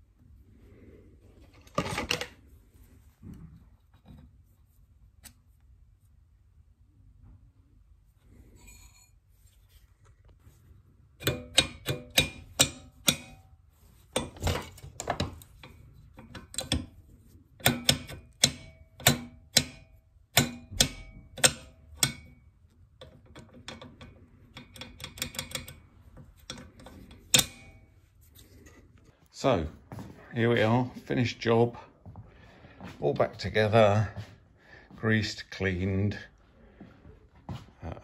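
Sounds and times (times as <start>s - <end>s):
metal tools clicking and clacking: 14.1s - 17.0s, 23.0s - 27.8s.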